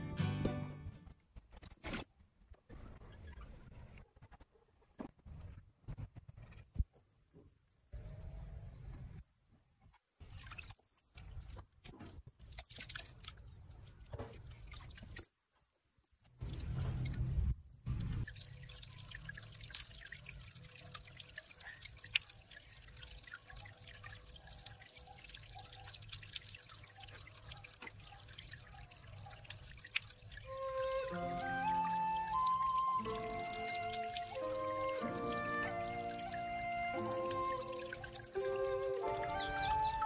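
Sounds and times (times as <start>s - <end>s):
water trickling and dripping: 9.8s - 15.4s, 16.0s - 40.0s
water sloshing and splashing: 9.8s - 15.6s, 16.2s - 40.0s.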